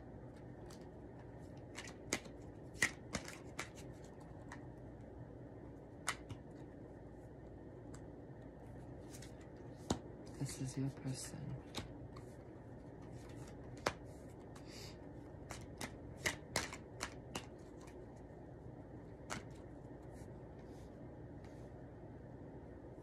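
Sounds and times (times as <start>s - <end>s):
cards clicking on a mat: 0.6s - 4.7s, 6.0s - 6.5s, 11.6s - 14.7s, 15.4s - 18.0s, 19.2s - 19.6s.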